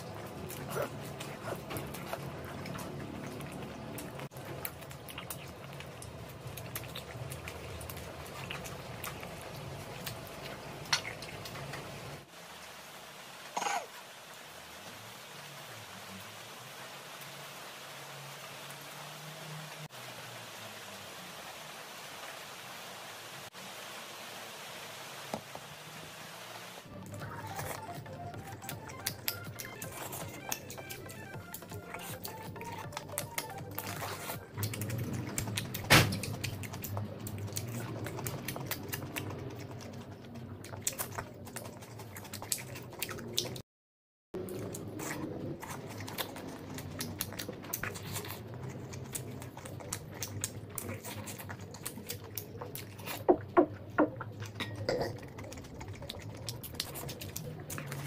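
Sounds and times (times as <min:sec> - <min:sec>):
wet chewing: 0:00.0 - 0:12.3, 0:26.9 - 0:43.6, 0:44.4 - 0:58.0.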